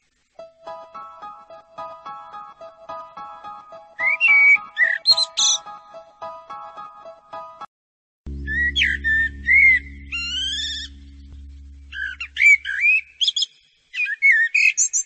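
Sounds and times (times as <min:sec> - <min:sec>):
songbird warbling: 0:04.0 - 0:05.6, 0:08.5 - 0:11.1, 0:11.9 - 0:15.0
low steady hum: 0:08.3 - 0:13.2.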